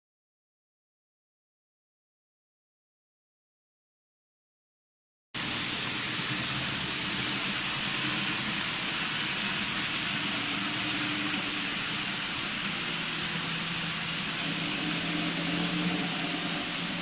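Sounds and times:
model train wheels hissing on rails: 5.4 - 17.0.

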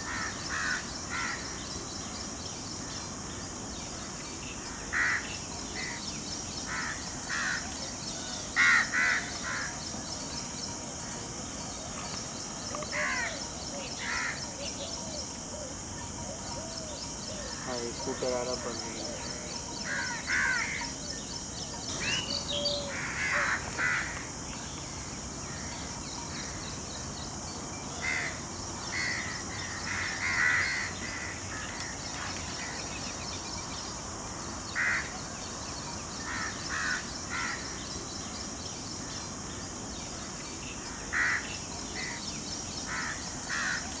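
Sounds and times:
crows cawing: 0.0 - 1.6, 4.7 - 6.0, 6.7 - 7.7, 8.6 - 9.8, 12.8 - 13.4, 14.0 - 14.4, 19.8 - 20.9, 22.6 - 24.2, 28.0 - 32.8, 34.8 - 35.3, 36.2 - 37.8, 40.9 - 42.2, 42.9 - 43.9
steady high hiss: 0.0 - 44.0.

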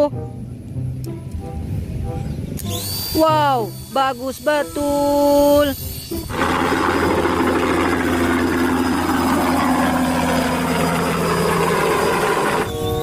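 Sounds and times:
helicopter engine and rotor: 5.8 - 13.0.

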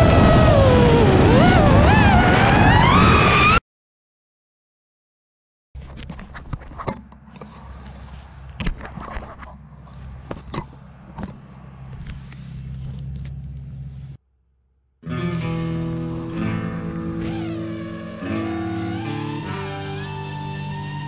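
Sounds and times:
knocks and scrapes of handling: 5.8 - 14.2
steady low hum: 7.0 - 14.2
electric guitar music: 15.0 - 21.0.

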